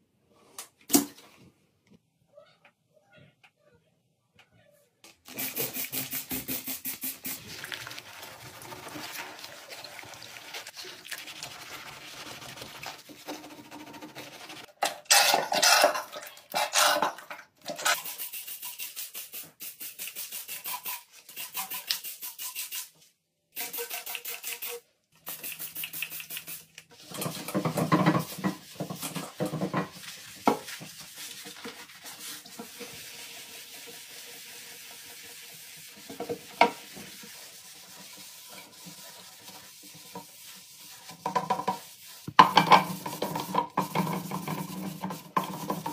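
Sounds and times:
sponge scrubbing ceramic: 5.3s - 16.0s, 26.4s - 45.9s.

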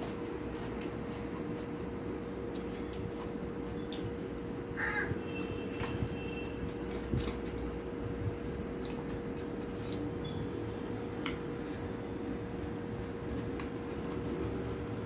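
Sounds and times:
background hum: 0.0s - 15.0s
fingers mixing food on steel plate: 0.0s - 15.0s
bird calling: 4.8s - 5.2s.

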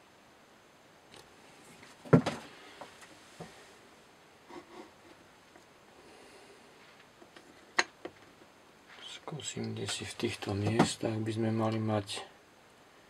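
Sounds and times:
handling knocks: 9.8s - 11.1s.

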